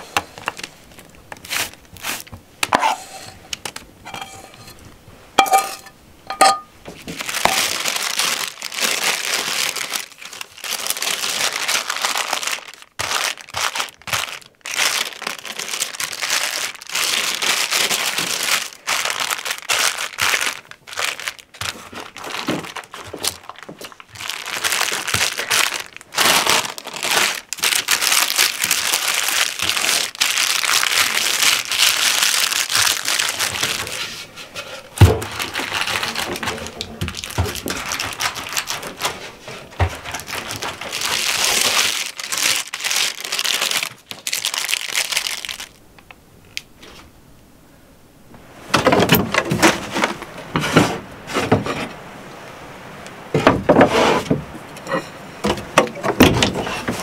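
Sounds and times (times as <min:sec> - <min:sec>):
parchment paper crinkling: 0:00.0 - 0:02.4, 0:06.9 - 0:45.8
brittle nut mix crackling: 0:07.2 - 0:34.0, 0:35.2 - 0:39.2, 0:39.8 - 0:45.8.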